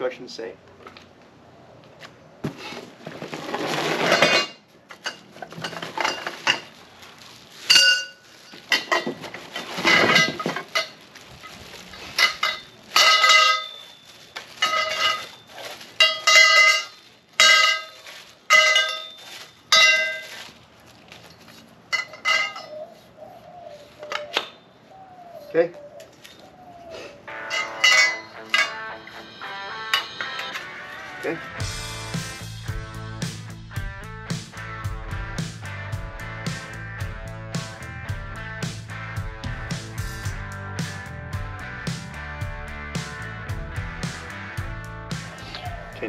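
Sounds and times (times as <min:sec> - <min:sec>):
metal tubes scraping: 0:03.4 - 0:06.8, 0:07.5 - 0:20.4, 0:21.3 - 0:23.1, 0:27.3 - 0:31.4
metal tubes clanking: 0:03.8 - 0:06.8, 0:07.6 - 0:11.0, 0:12.0 - 0:20.4, 0:21.9 - 0:22.9, 0:27.3 - 0:30.7.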